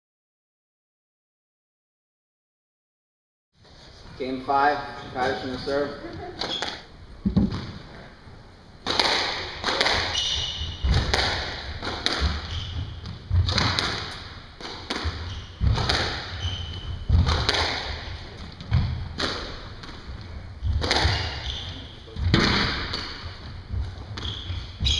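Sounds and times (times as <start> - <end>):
squash ball hitting rackets and walls: 6.4 - 7.9, 8.8 - 24.9.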